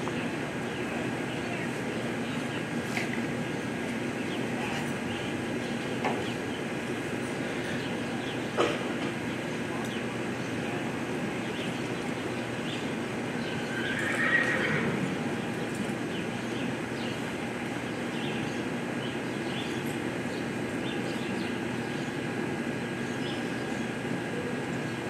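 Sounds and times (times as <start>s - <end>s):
horse whinnying: 13.8s - 15.0s.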